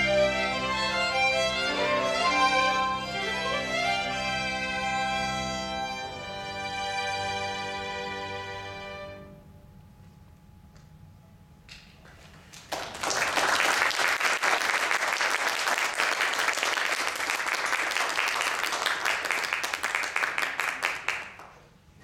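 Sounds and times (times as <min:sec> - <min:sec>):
audience applauding: 0:12.4 - 0:21.7.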